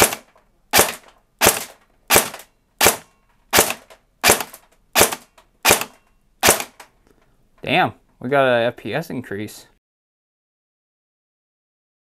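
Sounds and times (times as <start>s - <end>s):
airsoft gun single shots: 0.0s - 6.9s.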